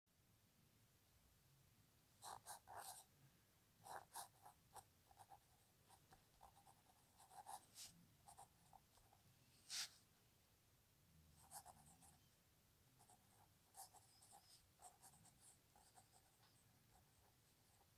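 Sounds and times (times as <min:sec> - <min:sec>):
pen scratching on paper: 0:02.2 - 0:03.0, 0:03.8 - 0:09.9, 0:11.4 - 0:12.2, 0:13.0 - 0:17.9.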